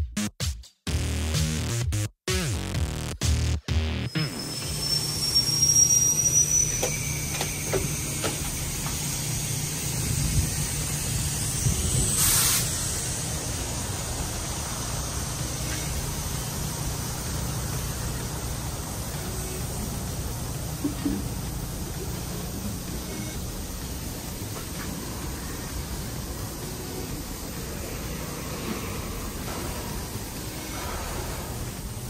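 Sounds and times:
steady low hum: 0:06.6 - 0:32.0
short burst of hiss: 0:07.2 - 0:13.8.

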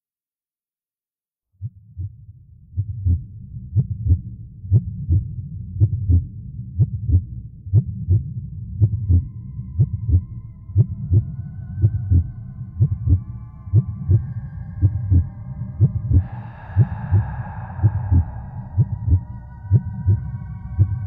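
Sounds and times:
heartbeat double thump: 0:02.8 - 0:10.2
high sustained drone tones: 0:09.2 - 0:21.0.

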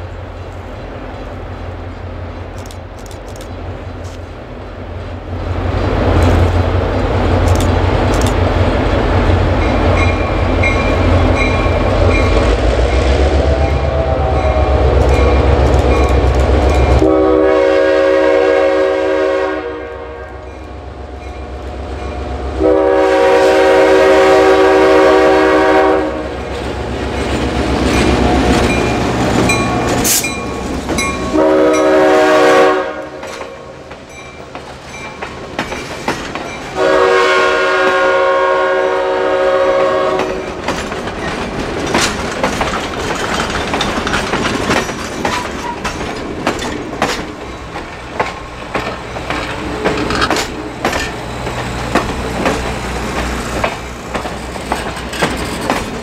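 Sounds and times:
diesel locomotive rumbling: 0:00.0 - 0:56.0
locomotive air horn blasts: 0:13.2 - 0:16.0, 0:16.9 - 0:20.6, 0:22.5 - 0:26.4, 0:31.2 - 0:33.3, 0:36.8 - 0:40.4.

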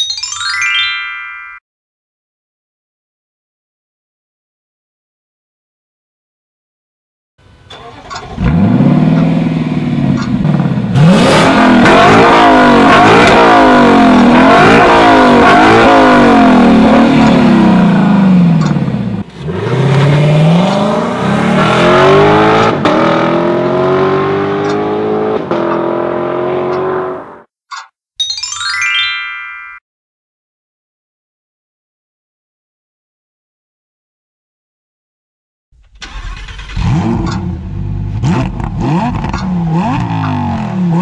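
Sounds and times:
car engine revving: 0:07.7 - 0:27.5, 0:35.9 - 0:41.0
short rising chime: 0:28.2 - 0:29.8.

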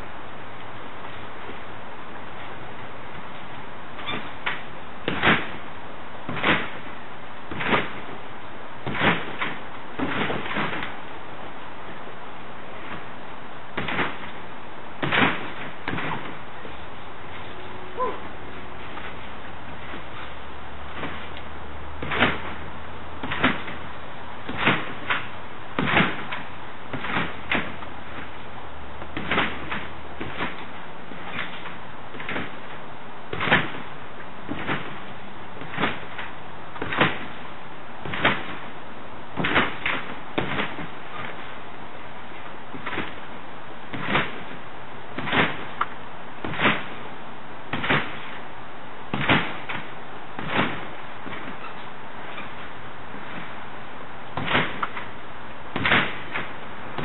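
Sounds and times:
trampoline mat thumps: 0:04.0 - 0:05.7, 0:06.3 - 0:08.2, 0:08.8 - 0:11.1, 0:12.8 - 0:13.1, 0:13.7 - 0:14.4, 0:15.0 - 0:28.4, 0:29.0 - 0:38.8, 0:39.4 - 0:41.6, 0:42.4 - 0:47.1, 0:47.7 - 0:48.4, 0:49.1 - 0:53.6, 0:54.3 - 0:55.1, 0:55.7 - 0:57.0.

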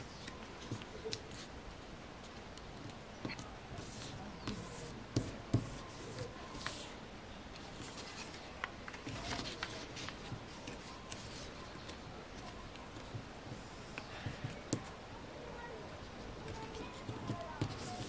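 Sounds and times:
paper being folded: 0:07.6 - 0:13.0.

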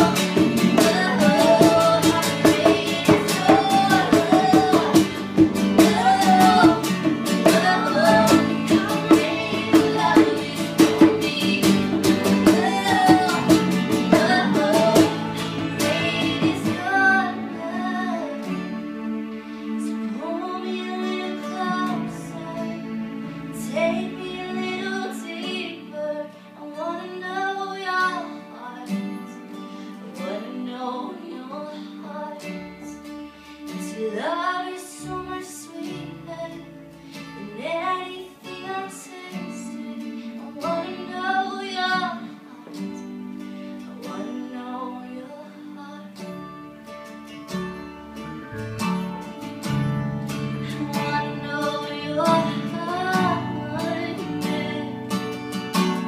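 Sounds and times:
woman singing: 0:00.0 - 0:18.9, 0:19.6 - 0:46.8, 0:50.5 - 0:56.0
acoustic guitar chords: 0:00.0 - 0:56.0.

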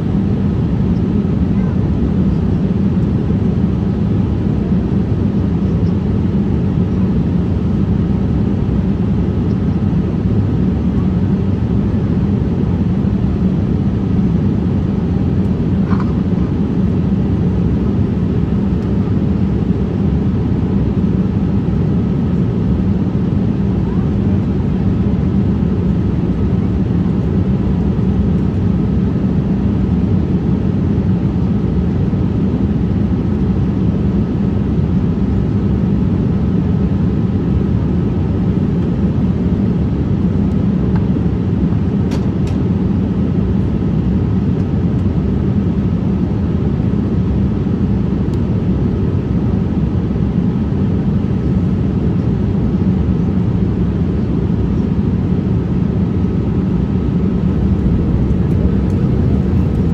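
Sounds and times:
airliner cabin rumble: 0:00.0 - 0:59.9
faint high whine: 0:56.6 - 0:59.9.

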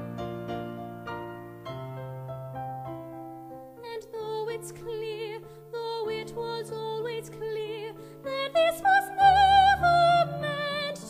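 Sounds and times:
piano chords: 0:00.0 - 0:11.0
woman singing with vibrato: 0:03.8 - 0:11.0.

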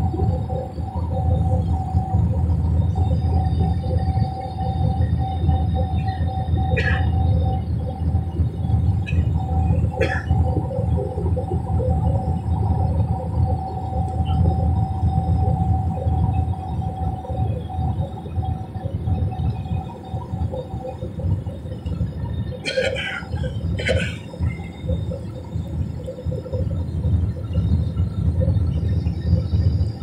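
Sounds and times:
airliner cabin engine rumble: 0:00.0 - 0:30.0.

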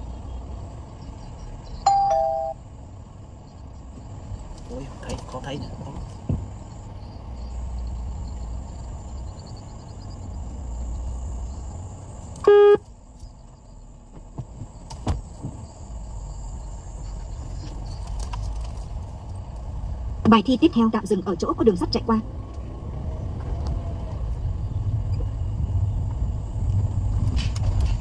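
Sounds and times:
car engine at low revs: 0:00.0 - 0:28.0
short loud beep: 0:12.4 - 0:12.8.

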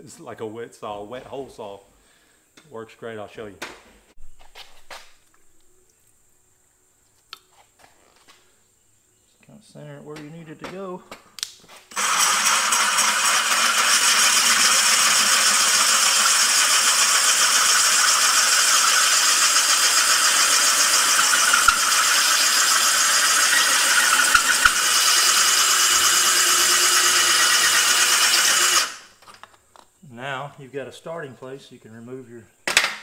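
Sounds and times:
drill hole saw grinding tile: 0:11.9 - 0:29.1.

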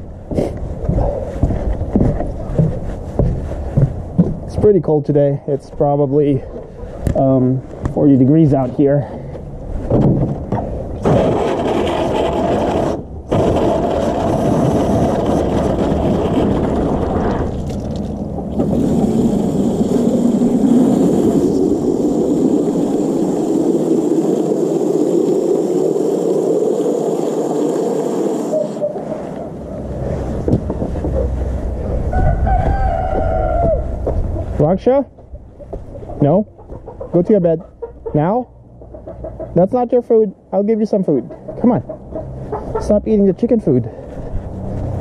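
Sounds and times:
hose water filling plastic jug: 0:11.0 - 0:28.8.

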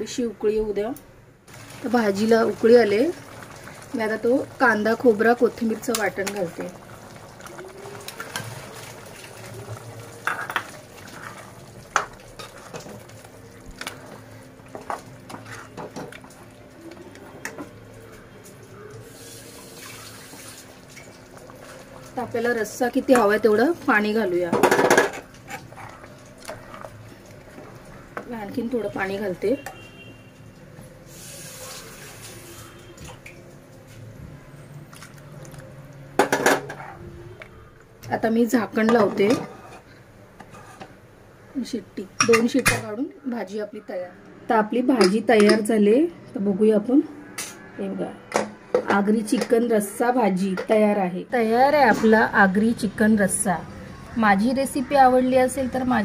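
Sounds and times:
water dripping: 0:01.5 - 0:24.2, 0:25.2 - 0:34.0, 0:34.6 - 0:36.2
gravy sloshing: 0:01.5 - 0:33.5, 0:34.2 - 0:37.3
water pouring and splashing: 0:01.5 - 0:37.1
ladle scraping pot: 0:07.4 - 0:13.2, 0:13.8 - 0:17.8, 0:24.5 - 0:28.3, 0:36.2 - 0:37.1, 0:38.8 - 0:41.0.

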